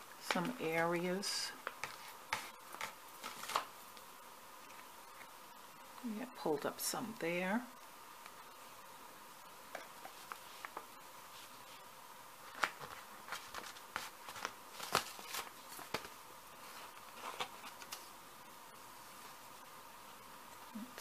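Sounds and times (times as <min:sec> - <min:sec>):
paper crinkling: 0:01.6 - 0:04.1, 0:09.7 - 0:11.8, 0:12.4 - 0:18.1.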